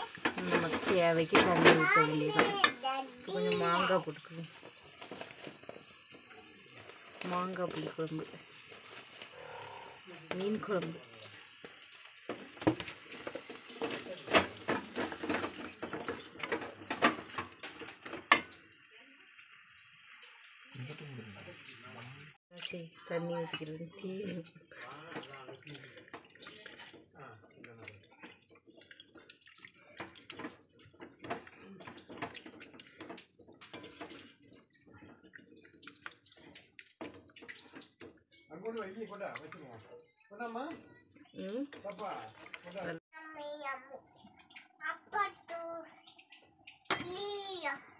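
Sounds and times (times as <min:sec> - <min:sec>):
spatula scraping metal pot: 0:00.0 - 0:02.8
ladle scraping metal pot: 0:00.0 - 0:06.0, 0:12.6 - 0:18.5, 0:23.5 - 0:38.2
curry sloshing in pot: 0:00.0 - 0:20.7, 0:22.2 - 0:47.9.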